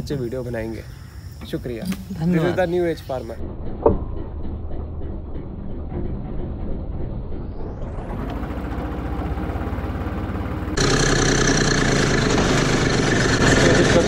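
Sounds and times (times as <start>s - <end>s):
tractor engine on road: 2.6s - 14.0s
tractor engine pulsing under load: 3.4s - 14.0s
rotary tiller churning soil: 10.8s - 14.0s.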